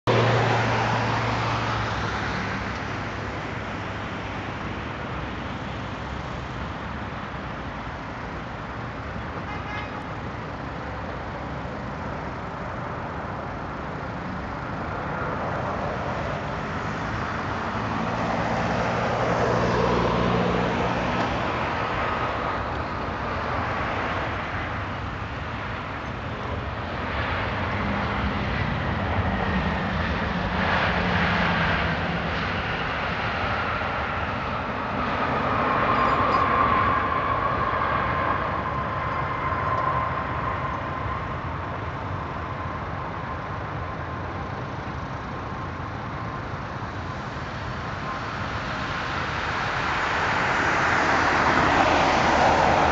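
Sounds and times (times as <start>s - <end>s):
jet engine rush: 10.8s - 52.9s.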